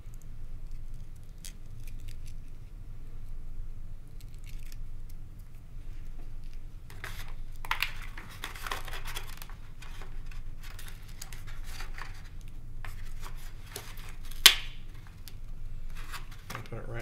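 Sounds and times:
scratchy rustling and rubbing: 0:05.9 - 0:14.3, 0:15.8 - 0:16.7.

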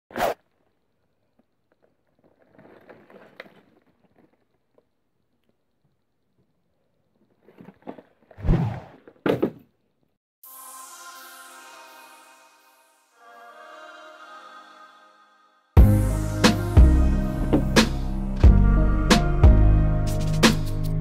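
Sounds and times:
electronic intro music: 0:10.4 - 0:21.0.

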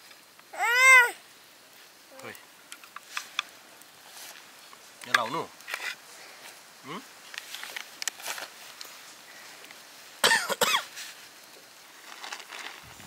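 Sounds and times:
plastic sheeting crinkling: 0:07.2 - 0:09.7, 0:10.8 - 0:13.0
paper packet crinkling: 0:12.0 - 0:13.0.

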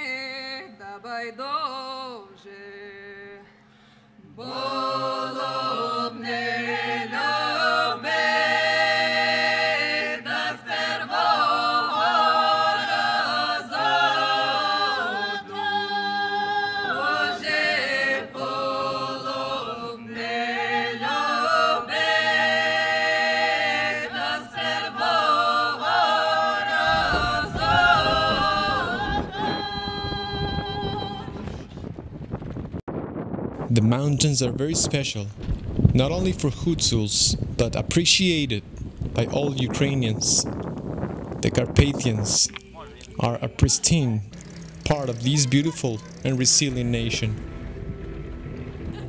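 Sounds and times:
voices singing slow harmonies: 0:00.0 - 0:31.8, 0:42.0 - 0:49.0
steady low drone: 0:26.4 - 0:49.0.

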